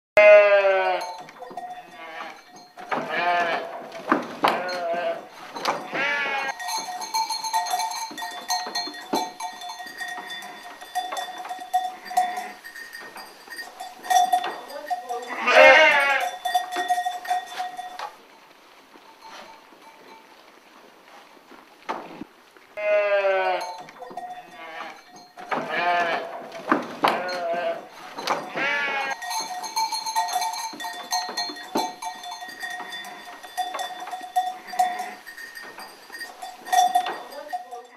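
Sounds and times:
sheep bleating: 0.2 - 1.2, 3.0 - 3.8, 4.4 - 6.6, 15.2 - 16.4, 22.8 - 23.8, 25.6 - 26.5, 27.1 - 29.2
hooves clicking on tiled floor: 1.0 - 18.2, 23.6 - 37.9
steady high ringing tones: 6.5 - 18.2, 29.1 - 37.9.

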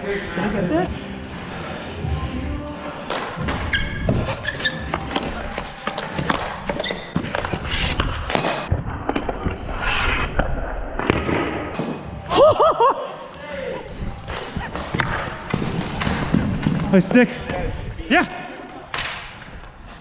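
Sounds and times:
hockey sticks and ball clacking: 3.1 - 12.0, 14.2 - 17.6.

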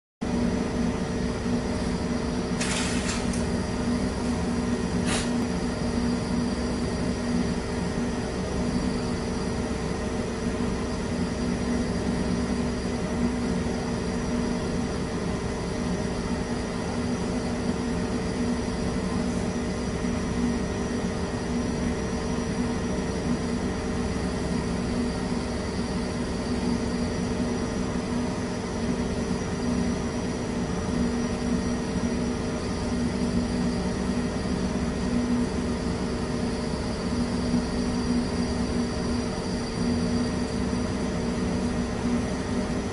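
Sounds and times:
mechanical drone of equipment: 0.3 - 14.7.

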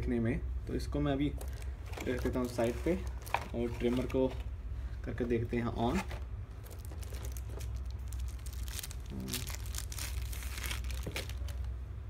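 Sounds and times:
plastic packaging crinkling: 1.4 - 4.4, 5.9 - 11.8.

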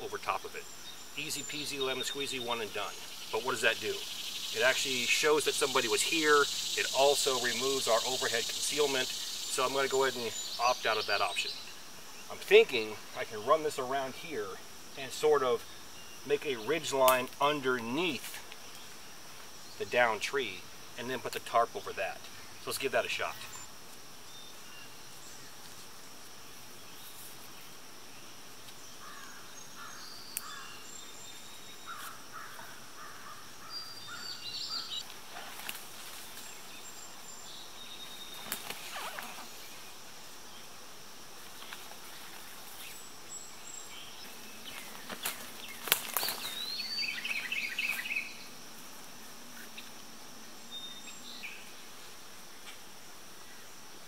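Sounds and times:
high insect drone: 0.0 - 54.0
rope rustling and scraping on wood: 35.0 - 36.6, 38.3 - 39.6.

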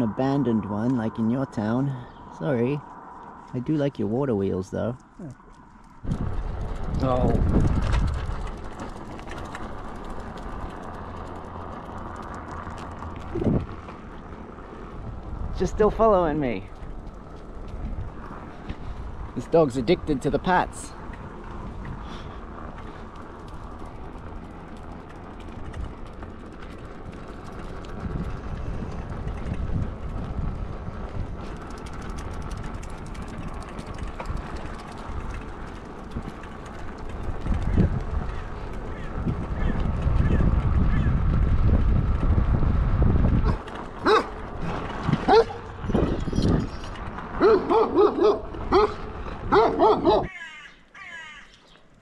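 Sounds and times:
wind buffeting microphone: 0.0 - 50.3
bicycle tyre noise: 0.0 - 52.0
wind on microphone: 6.0 - 8.7, 13.2 - 13.8, 27.9 - 32.7, 37.1 - 50.3.

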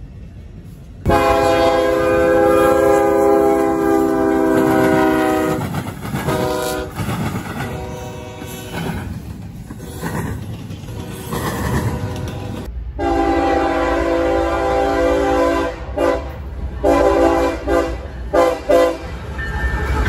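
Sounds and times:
freight train rolling past: 0.0 - 20.0
locomotive air horn blasts: 1.1 - 7.0, 7.6 - 8.8, 12.0 - 19.1.

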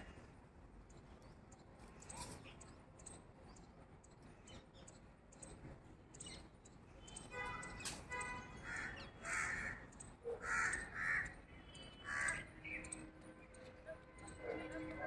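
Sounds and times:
crows cawing: 8.6 - 12.8.

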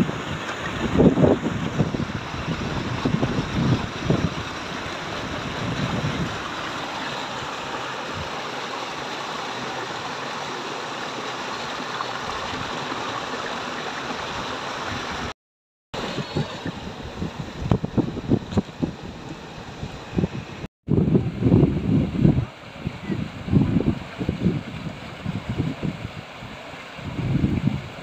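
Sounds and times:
wind buffeting microphone: 0.0 - 6.6, 16.0 - 28.0
water rushing out of a sluice: 0.0 - 15.3.

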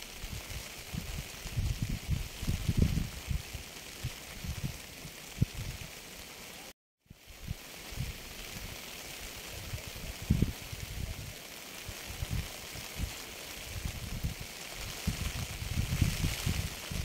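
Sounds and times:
rain: 0.0 - 17.0.

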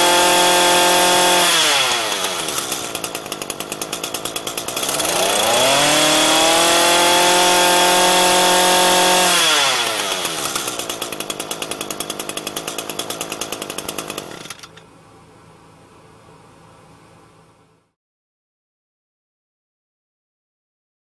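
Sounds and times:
brush cutter engine revving: 0.0 - 14.8.

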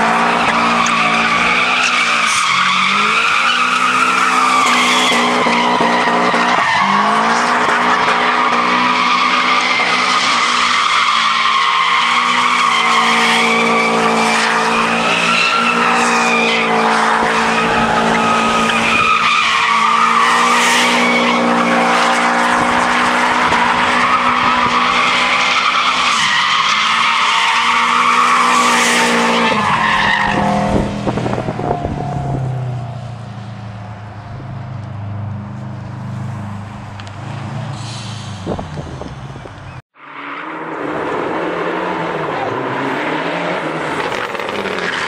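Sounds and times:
car engine at high revs: 0.0 - 39.8, 40.4 - 45.0
tyres squealing: 0.2 - 30.7.

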